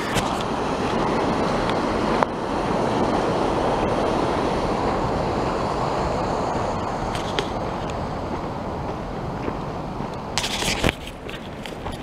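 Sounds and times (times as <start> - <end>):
creek rushing: 0.0 - 12.0.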